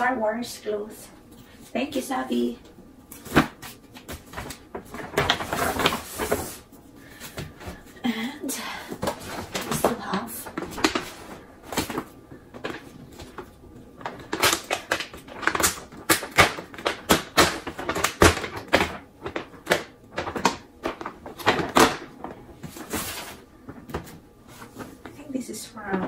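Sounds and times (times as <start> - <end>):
paper bag crinkling and rustling: 3.2 - 7.8, 9.0 - 25.0.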